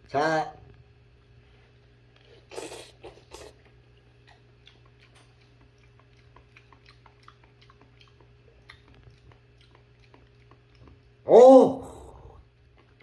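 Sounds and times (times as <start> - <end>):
soft chewing clicks: 1.8 - 11.2, 12.4 - 13.0
person slurping: 2.2 - 3.7.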